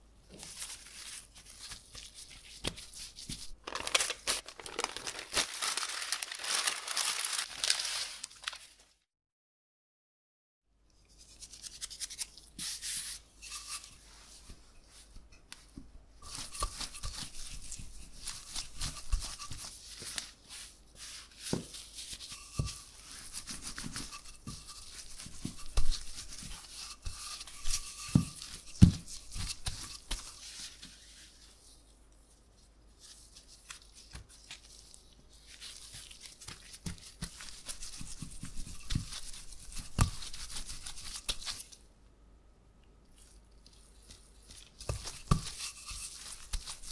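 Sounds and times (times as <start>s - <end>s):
rolling pin scraping over dough: 16.2s - 31.5s, 36.0s - 41.7s, 44.6s - 46.9s.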